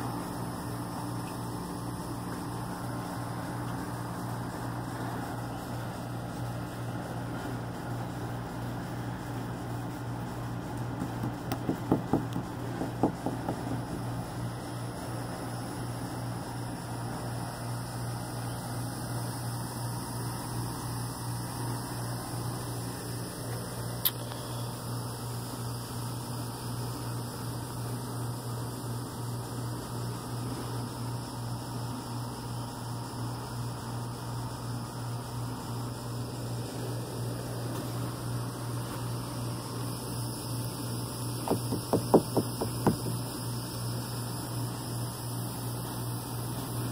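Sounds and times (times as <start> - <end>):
low hum and hiss: 0.0 - 46.9
finger taps on fiberglass: 11.0 - 14.1, 41.4 - 43.3.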